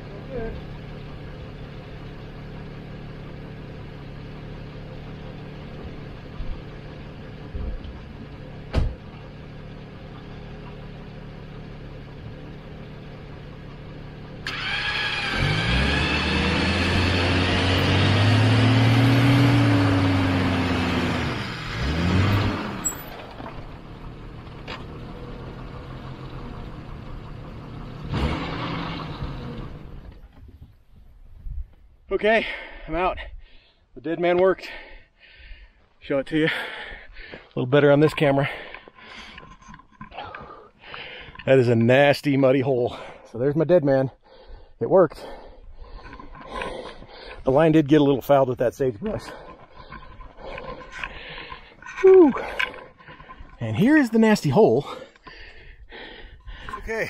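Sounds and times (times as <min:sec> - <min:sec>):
engine idling and revving: 0:00.0 - 0:30.6, 0:36.0 - 0:57.0
winch whine: 0:49.3 - 0:53.6.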